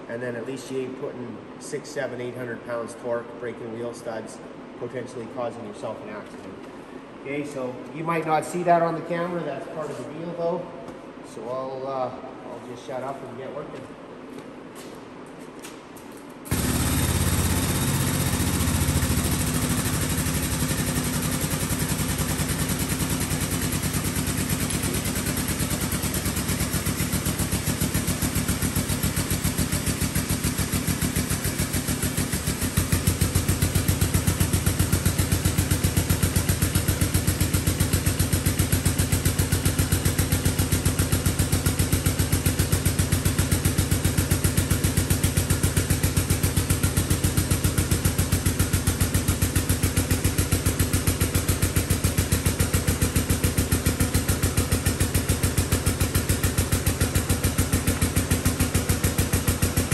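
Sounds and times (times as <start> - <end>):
motor running with rapid pulse: 16.5 - 40.9.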